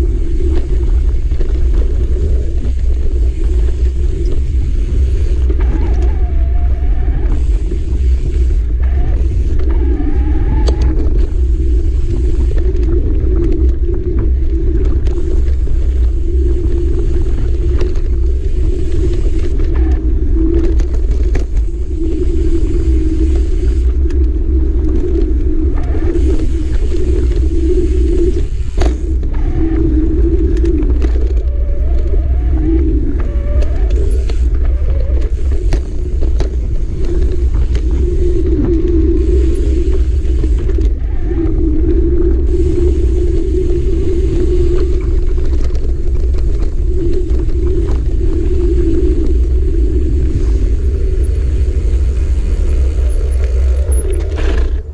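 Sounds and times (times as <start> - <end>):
bike clicks and rattles: 0.0 - 54.9
tyres rumbling on dirt: 0.0 - 54.9
wavering hum: 0.0 - 54.9
wind buffeting microphone: 0.0 - 54.9.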